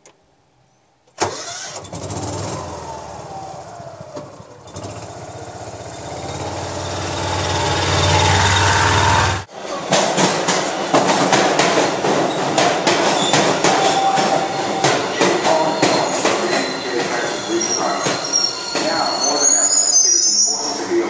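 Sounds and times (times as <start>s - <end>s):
utility vehicle engine running: 1.3s - 9.5s.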